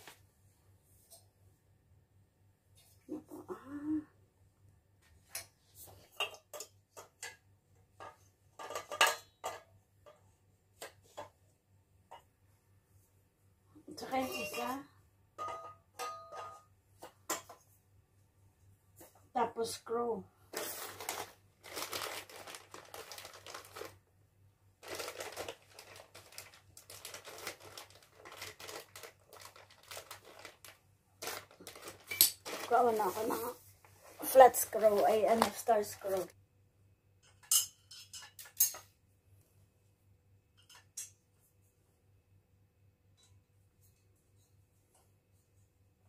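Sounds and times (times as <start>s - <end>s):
plastic packet crinkling: 20.5s - 24.0s, 24.8s - 33.4s, 34.3s - 36.3s.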